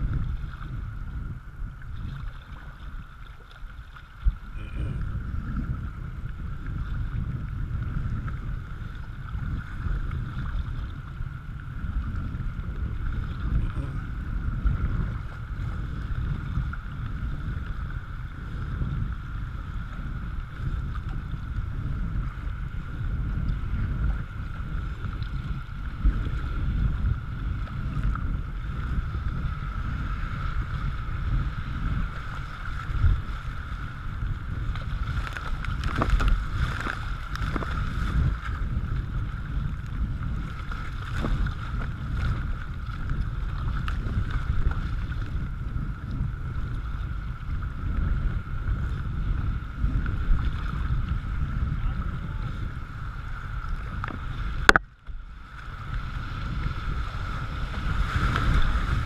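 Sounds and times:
wind buffeting microphone: 0.0s - 59.0s
paddle strokes splashing: 0.1s - 6.0s, 22.2s - 59.0s.

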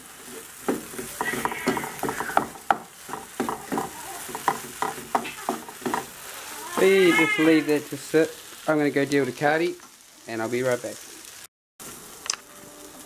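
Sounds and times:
spatula scraping a frying pan: 0.0s - 7.7s
food sizzling: 0.0s - 13.0s.

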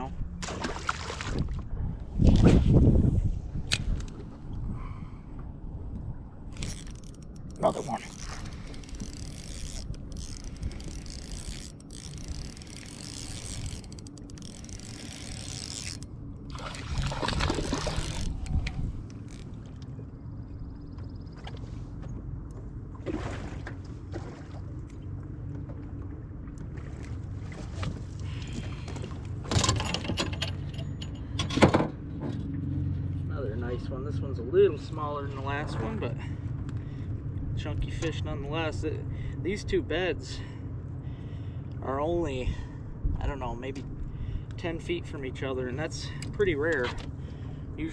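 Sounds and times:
small boat motor humming: 0.0s - 2.3s, 2.9s - 47.9s
knocks and rattles on metal boat: 31.4s - 32.5s.

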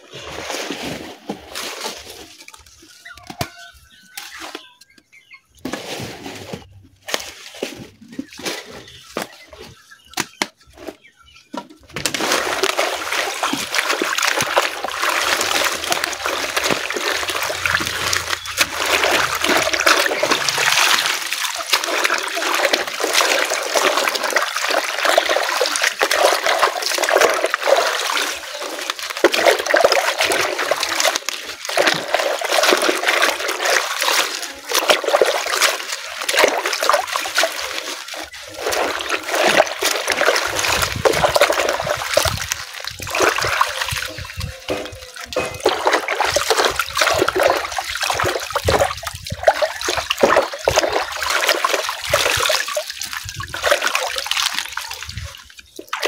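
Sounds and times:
water splashing in plastic basin: 11.8s - 56.0s
leaves dripping water: 12.0s - 56.0s.

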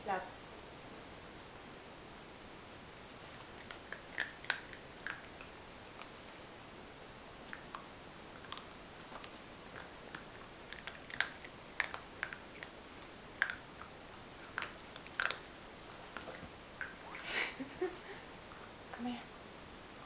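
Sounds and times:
dog gnawing on a chew: 3.3s - 6.1s, 7.4s - 17.2s.

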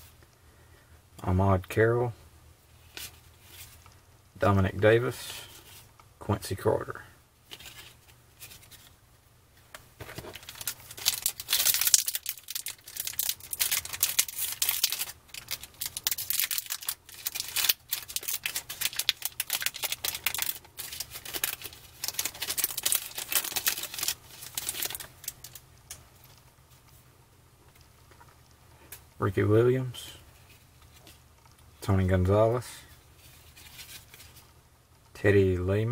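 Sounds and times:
foil pack crinkling: 10.0s - 25.6s.

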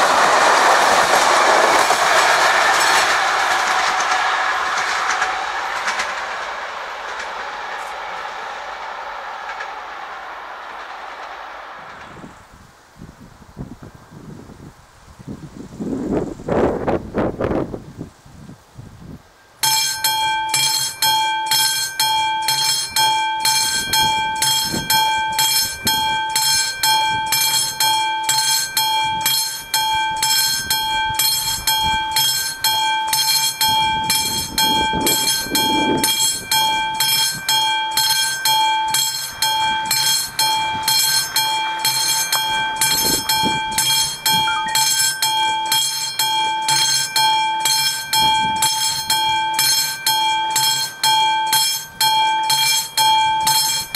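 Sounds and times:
level crossing bell ringing: 19.6s - 53.9s.

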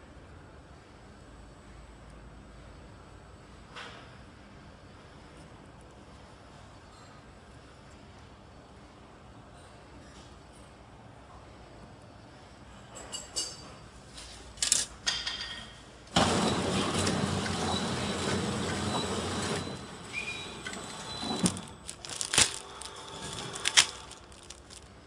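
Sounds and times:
packaging machine running: 16.1s - 25.0s
plastic film crackling: 21.4s - 25.0s.

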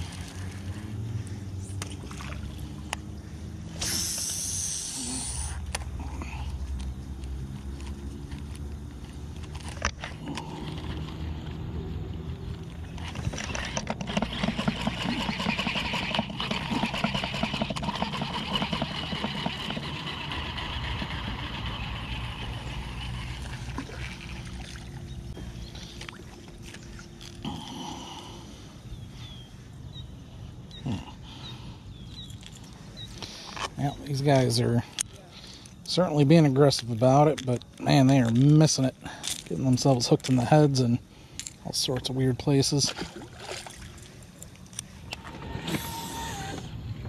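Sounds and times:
steady low hum: 0.0s - 47.0s
fishing reel ticking: 13.4s - 23.8s.

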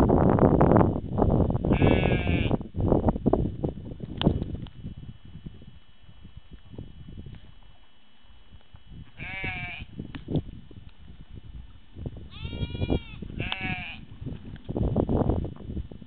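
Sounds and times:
sheep bleating: 1.7s - 2.6s, 9.2s - 9.9s, 12.3s - 14.0s.

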